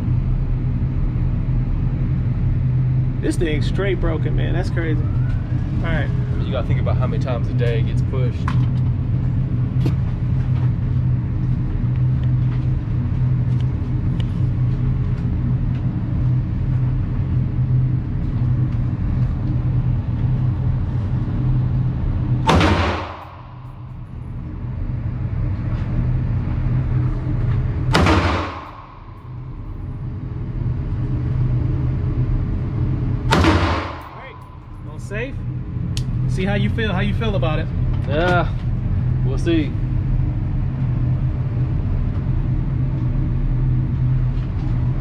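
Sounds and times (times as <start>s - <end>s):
steady low hum: 0.0s - 45.0s
rifle shots with ringing tail: 22.4s - 23.9s, 27.9s - 29.4s, 33.3s - 34.7s.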